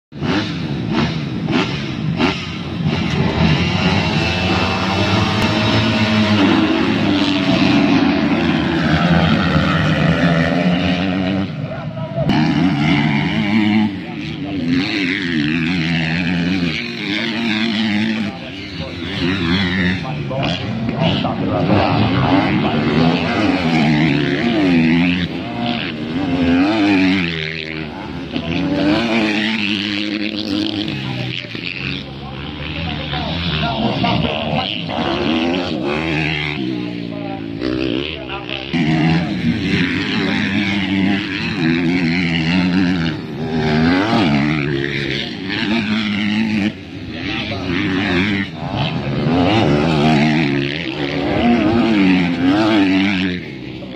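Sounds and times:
motocross bikes revving: 0.1 - 53.9.

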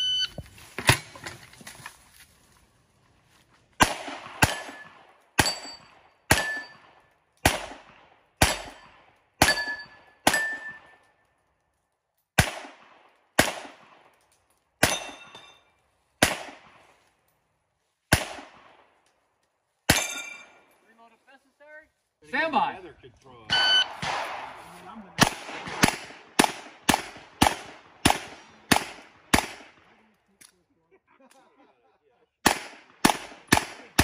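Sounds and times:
pistol shots with echo: 3.8 - 11.0, 12.4 - 14.0, 14.8 - 15.4, 16.2 - 16.8, 18.1 - 18.8, 23.5 - 29.9, 32.4 - 34.0
steel plate ringing: 5.4 - 6.8, 9.4 - 10.9, 19.9 - 20.6.

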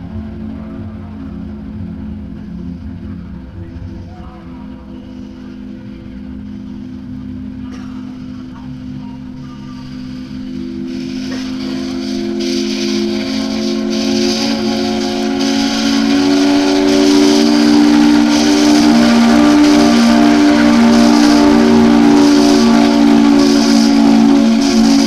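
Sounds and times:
steam hissing: 9.6 - 25.0
steam locomotive whistle: 9.6 - 25.0.

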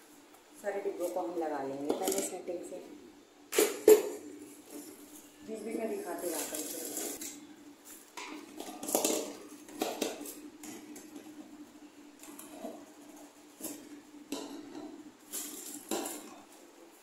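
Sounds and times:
plastic bag crinkling: 4.6 - 10.5.

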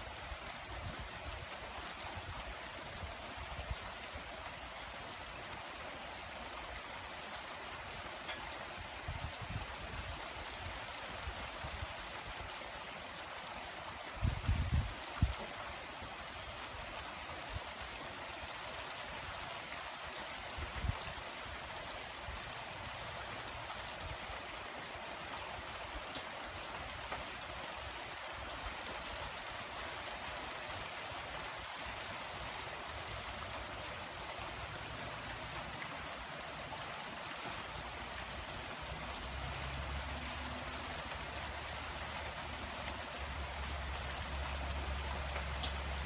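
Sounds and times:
light rain hiss: 0.0 - 46.0.

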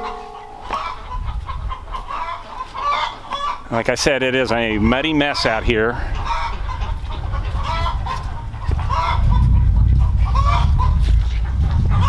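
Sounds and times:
chickens clucking: 0.0 - 3.7, 5.2 - 12.0
low rumble: 6.6 - 12.0.

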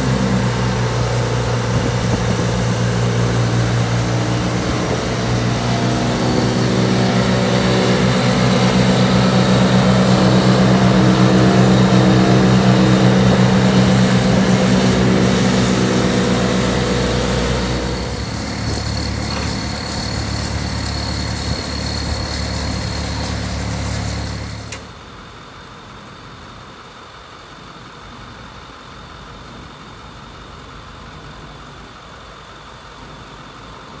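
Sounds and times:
high-pressure water jet hissing: 0.0 - 24.7
diesel engine running under load: 0.0 - 34.0.

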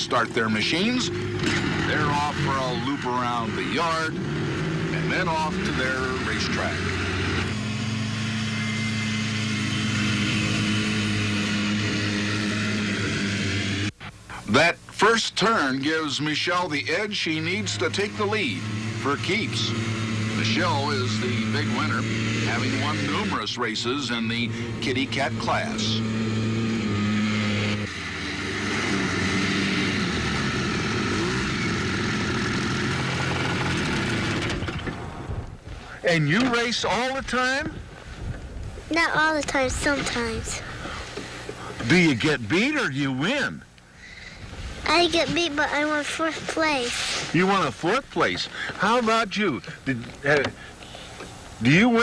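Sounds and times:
small snowmobile engines running: 0.0 - 14.0, 14.6 - 52.0.

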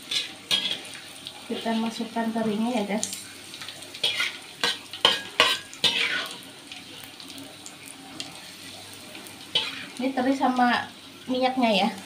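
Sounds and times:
metal spatula scraping pan: 0.0 - 0.9, 4.0 - 6.4, 9.5 - 9.9
fried food sizzling: 0.0 - 12.0.

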